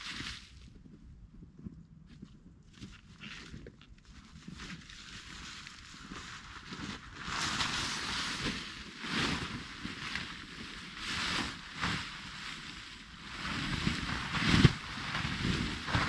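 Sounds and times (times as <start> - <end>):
tarp rustling and swishing: 0.0 - 0.6, 4.2 - 16.0.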